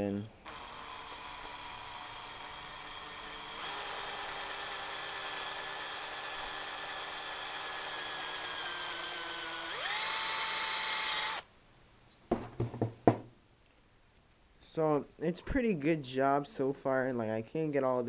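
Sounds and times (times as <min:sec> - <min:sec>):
electric drill wire brush scouring metal: 0:00.5 - 0:11.4.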